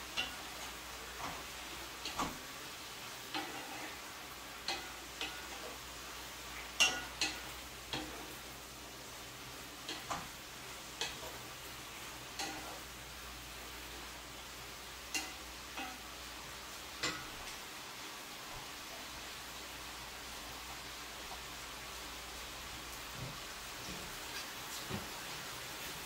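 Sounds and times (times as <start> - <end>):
noodles sizzling in a pan: 0.0 - 26.0
utensil tapping a pan: 0.1 - 2.4, 4.6 - 5.8, 6.6 - 8.4, 9.8 - 10.4, 11.0 - 11.4, 12.4 - 12.8, 15.1 - 16.1, 17.0 - 17.5.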